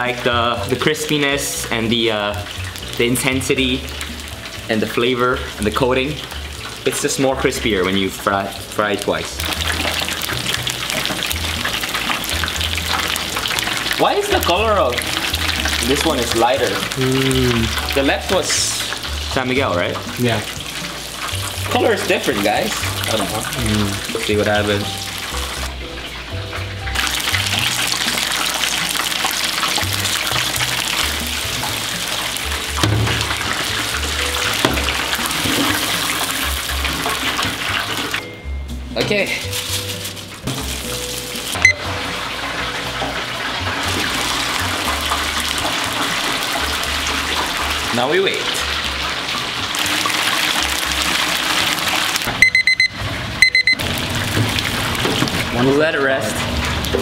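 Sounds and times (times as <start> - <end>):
background music: 0.0 - 57.0
chicken deep-frying sizzle: 0.0 - 57.0
digital kitchen timer beeping: 38.1 - 39.0, 41.6 - 42.0, 52.3 - 54.0.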